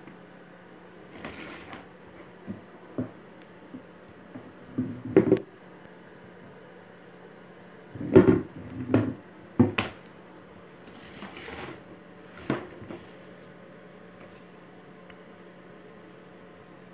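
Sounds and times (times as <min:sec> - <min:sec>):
hollow plastic knocks and clatters: 0:04.7 - 0:05.5.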